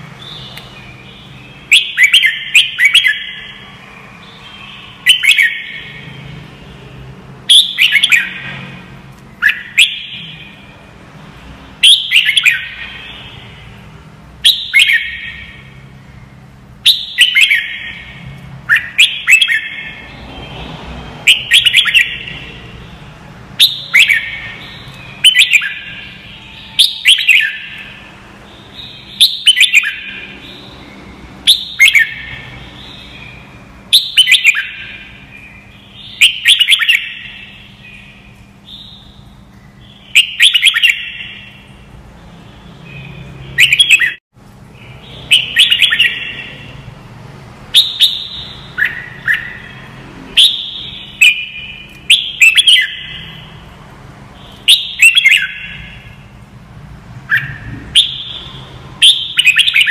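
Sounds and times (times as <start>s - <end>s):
bird singing warbled phrases: 0.0s - 47.0s, 47.6s - 56.5s, 57.2s - 59.9s.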